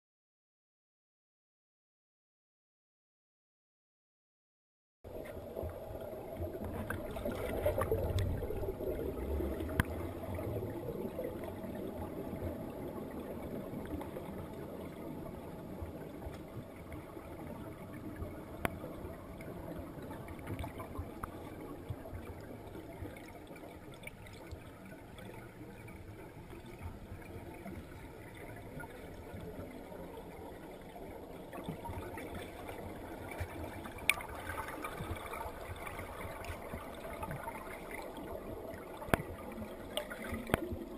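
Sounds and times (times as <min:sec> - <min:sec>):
muffled underwater water rush: 0:05.1 - 0:40.9
faint clicks: 0:09.6 - 0:10.0, 0:39.0 - 0:40.9.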